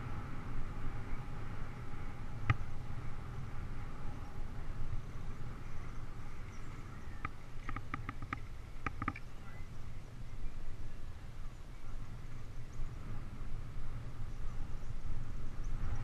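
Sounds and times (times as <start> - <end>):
bicycle tyres rumbling on pavement: 0.0 - 10.3
wind: 0.0 - 16.0.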